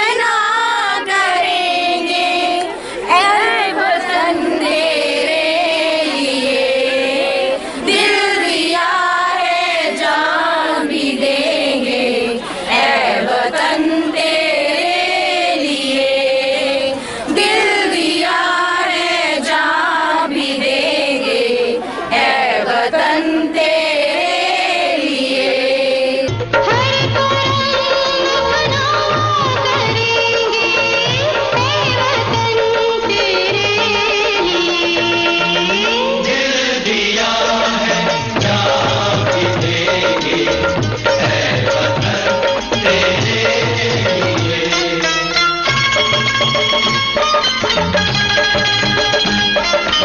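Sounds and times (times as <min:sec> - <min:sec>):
women singing in unison: 0:00.0 - 0:35.2.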